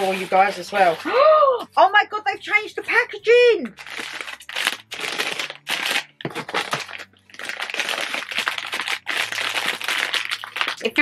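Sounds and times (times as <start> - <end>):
plastic packets rustling: 0.0 - 1.1, 3.6 - 11.0.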